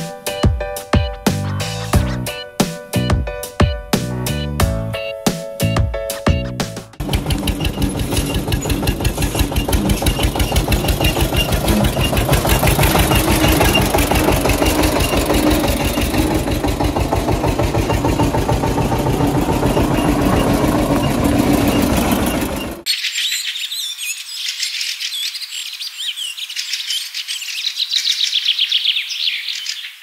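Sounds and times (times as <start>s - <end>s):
diesel tractor engine idling: 7.0s - 22.8s.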